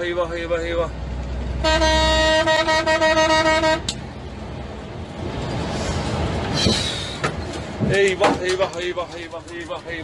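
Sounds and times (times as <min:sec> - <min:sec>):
vehicle horn: 0:01.6 - 0:03.9.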